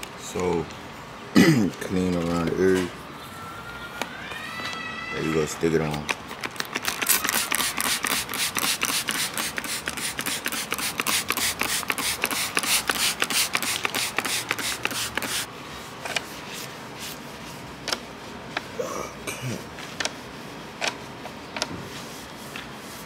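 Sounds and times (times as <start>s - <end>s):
spray bottle spritzing: 6.4s - 15.5s.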